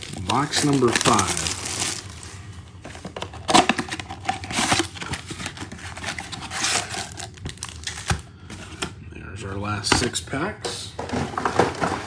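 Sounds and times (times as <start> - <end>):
cardboard scraping and rustling: 2.9 - 8.8, 11.0 - 12.0.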